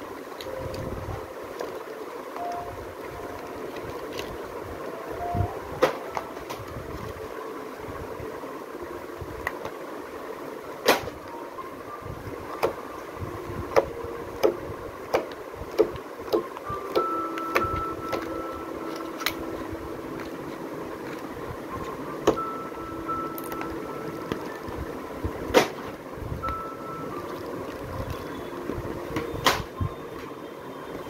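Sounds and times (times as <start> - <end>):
steady background hum: 0.0 - 31.0.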